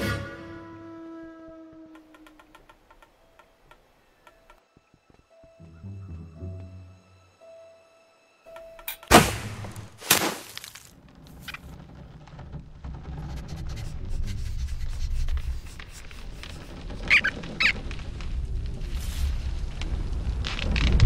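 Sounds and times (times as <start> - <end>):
sharp hits: 9.0 - 10.7
low rumble: 11.0 - 21.0
short squeaks: 16.2 - 18.2.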